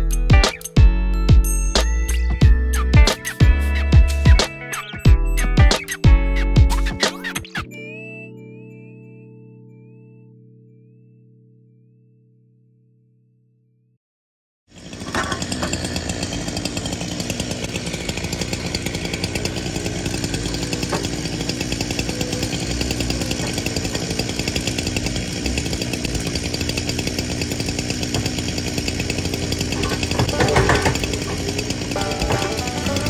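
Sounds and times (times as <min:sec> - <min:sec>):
attachment digging into ground: 0:14.8 - 0:33.0
diesel engine running under load: 0:14.9 - 0:33.0.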